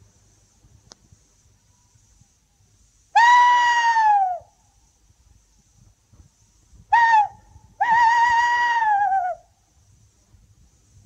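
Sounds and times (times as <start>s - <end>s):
man imitating owl hoots: 7.0s - 9.4s.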